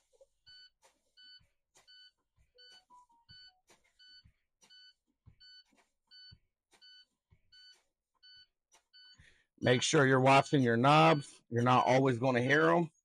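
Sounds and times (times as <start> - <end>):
warning buzzer beeping: 2.6 - 12.0.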